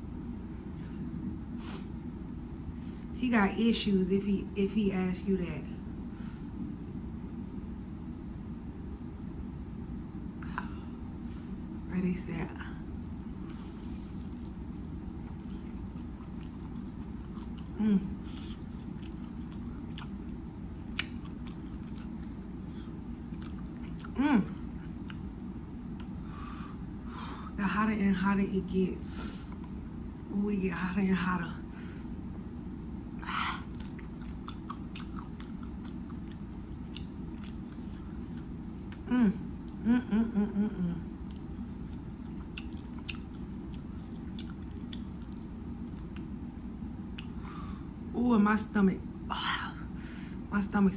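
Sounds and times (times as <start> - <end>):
low background hum: 0.0 - 50.9
chewing crispy chicken wing: 13.0 - 26.5, 33.2 - 39.8, 41.0 - 47.6.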